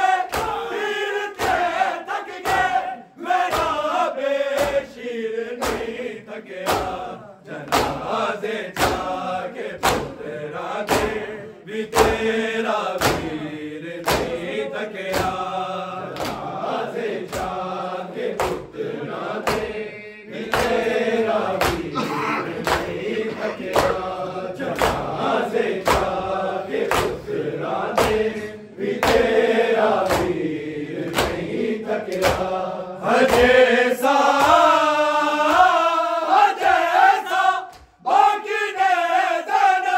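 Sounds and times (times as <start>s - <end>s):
men chanting a lament: 0.0s - 39.9s
hands slapping chests: 0.2s - 0.7s, 1.3s - 1.8s, 2.4s - 2.8s, 3.5s - 3.8s, 4.5s - 4.9s, 5.6s - 6.0s, 6.6s - 8.1s, 8.7s - 10.2s, 10.8s - 11.3s, 12.9s - 13.4s, 14.0s - 14.4s, 15.1s - 16.5s, 18.2s - 18.7s, 19.4s - 19.8s, 20.4s - 25.2s, 25.8s - 30.4s, 31.0s - 32.5s, 33.2s - 33.6s, 34.2s - 34.7s, 37.7s - 37.9s.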